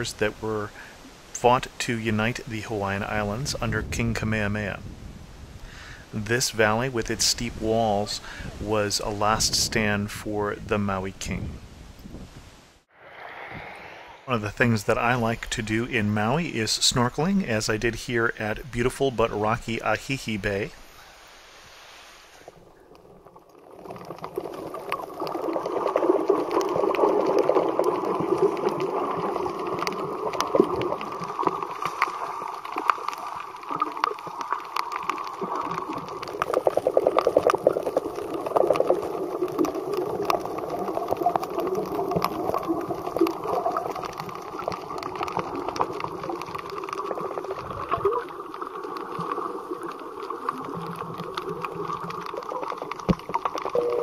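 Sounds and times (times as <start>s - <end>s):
muffled underwater sloshing: 21.6s - 54.0s
sharp crackling clicks: 22.9s - 53.8s.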